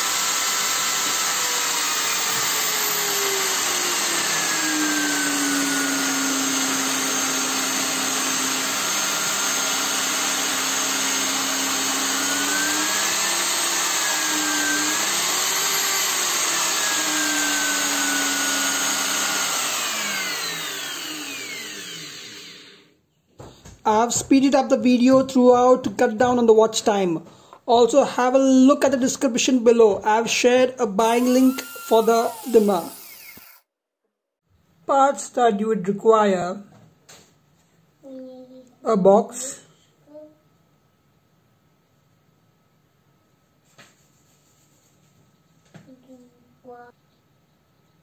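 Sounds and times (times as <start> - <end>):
hammer drill motor whine: 0.0 - 22.9, 31.1 - 33.6.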